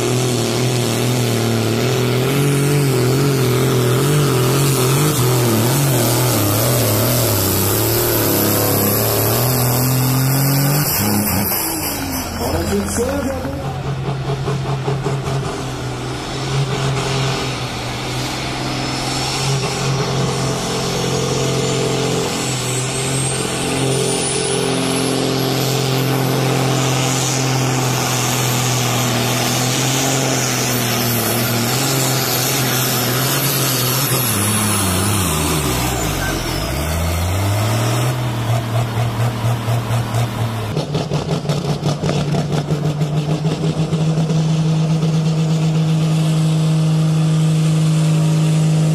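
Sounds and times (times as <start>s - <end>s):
diesel engine at high revs: 0.0s - 48.9s
tractor engine pulsing beat: 11.2s - 16.4s.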